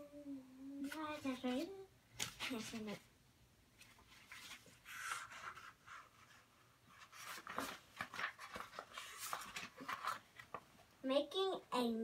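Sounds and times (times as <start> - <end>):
book pages turning: 0.8 - 3.0, 3.8 - 10.7.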